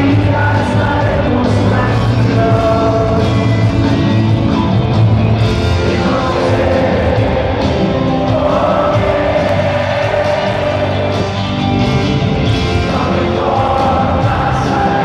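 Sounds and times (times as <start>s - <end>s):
heavy bass line: 0.0s - 15.0s
rock band playing live: 0.0s - 15.0s.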